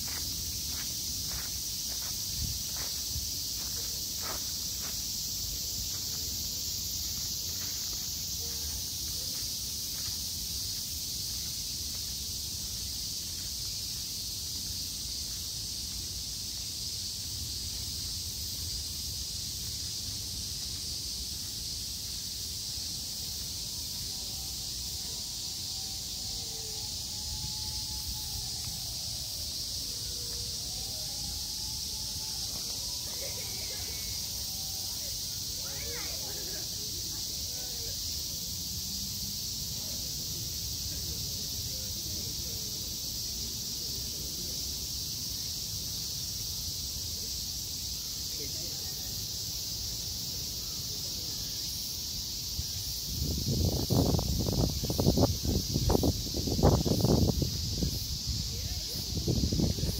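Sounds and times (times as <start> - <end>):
insects chorus: 0.0 - 59.9.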